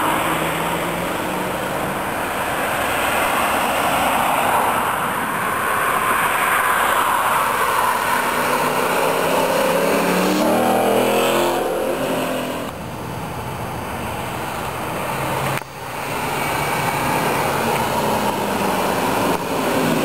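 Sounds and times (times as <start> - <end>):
car accelerating past: 7.8 - 12.7.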